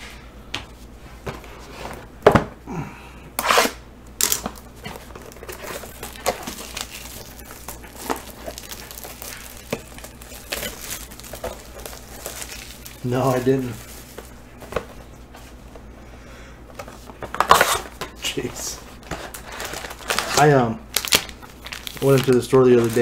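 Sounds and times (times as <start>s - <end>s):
plastic wrapper crinkling and tearing: 4.2s - 14.8s, 17.2s - 23.0s.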